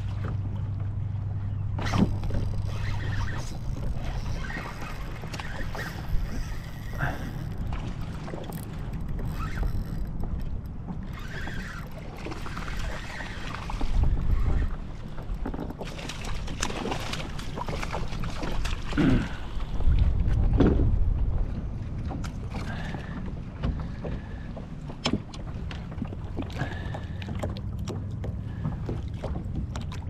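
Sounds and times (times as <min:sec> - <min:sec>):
low rumble of wind: 0:00.0 - 0:30.0
low steady hum: 0:00.0 - 0:30.0
water on boat hull: 0:00.0 - 0:30.0
wind buffeting microphone: 0:01.2 - 0:26.4
fishing reel clicks and knocks: 0:01.8 - 0:07.7, 0:08.4 - 0:13.4.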